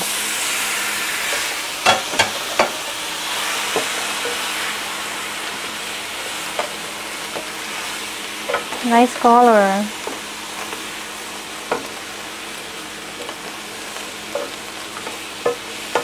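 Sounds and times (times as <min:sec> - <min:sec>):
meat sizzling in oil: 0:00.0 - 0:16.0
spoon knocking against pan: 0:14.4 - 0:16.0.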